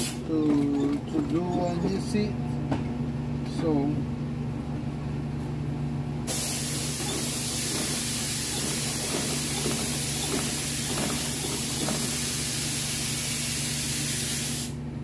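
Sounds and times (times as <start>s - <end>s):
sewing machine stitching: 0.0s - 2.1s, 6.8s - 12.4s
loud even hiss: 6.3s - 14.8s.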